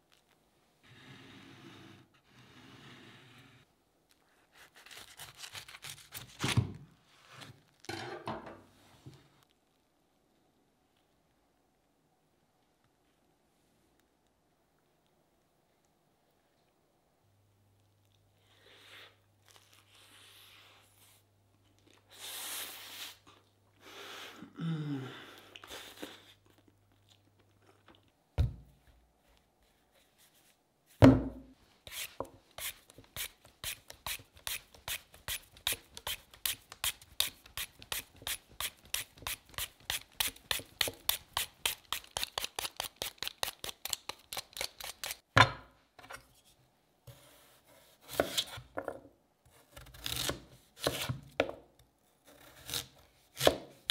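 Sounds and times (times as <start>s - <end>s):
knife cutting through potato: 4.5s - 6.6s, 47.1s - 48.7s, 49.5s - 51.5s, 52.2s - 53.9s
peeler scraping sweet potato: 31.9s - 45.2s.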